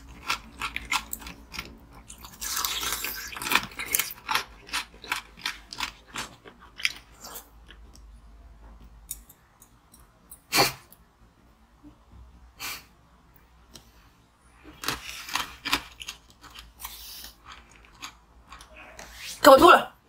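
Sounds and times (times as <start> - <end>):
crunchy chewing of candy: 0.0 - 7.8, 14.6 - 19.1.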